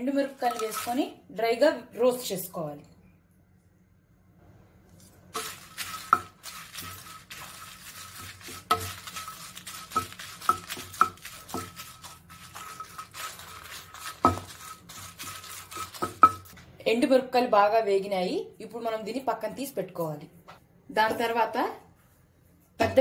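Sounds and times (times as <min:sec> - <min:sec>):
spatula scraping chillies in a pan: 0:00.3 - 0:01.2, 0:05.0 - 0:16.6.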